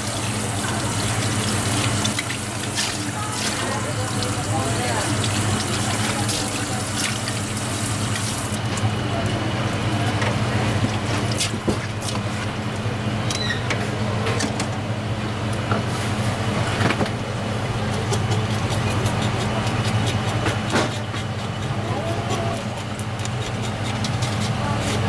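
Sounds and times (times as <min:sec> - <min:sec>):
low machine hum: 0:00.0 - 0:25.0
knife scraping fish scales: 0:18.0 - 0:25.0.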